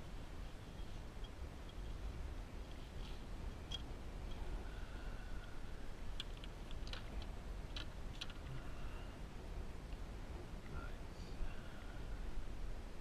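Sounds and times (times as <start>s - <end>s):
low steady rumble: 0.0s - 13.0s
faint clicks and ticks: 5.4s - 8.7s.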